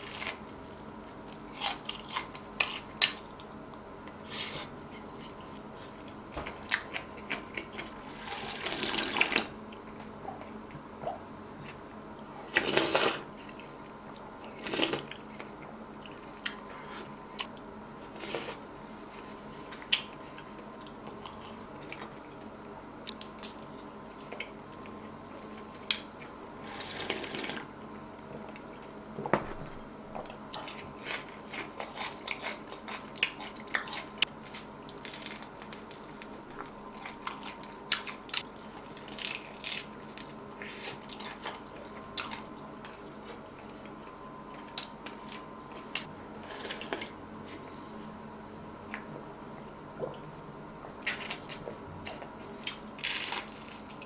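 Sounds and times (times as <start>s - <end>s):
crisp crunching and chewing: 0.0s - 9.5s, 30.5s - 44.0s, 51.1s - 54.0s
slurping broth from a spoon: 26.6s - 27.7s.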